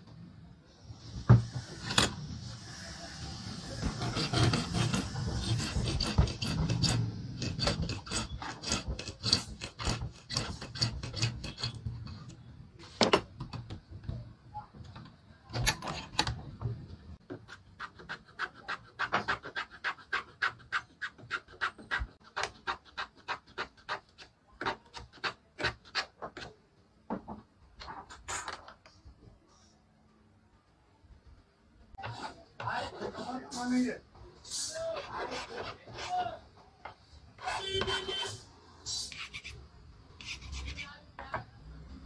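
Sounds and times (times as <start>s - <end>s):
hand file rasping on metal: 3.8s - 11.8s.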